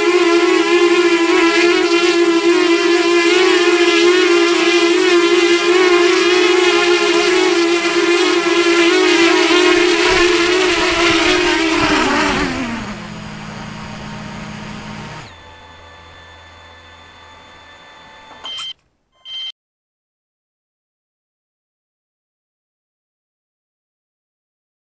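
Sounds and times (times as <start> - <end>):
electric motors and propellers whining: 0.0 - 19.5.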